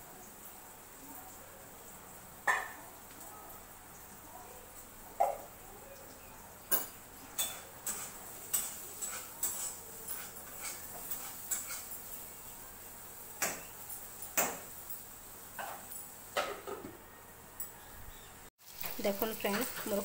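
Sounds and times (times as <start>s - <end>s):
low steady background noise: 0.0s - 20.0s
metal spatula scraping iron pan: 7.4s - 11.9s.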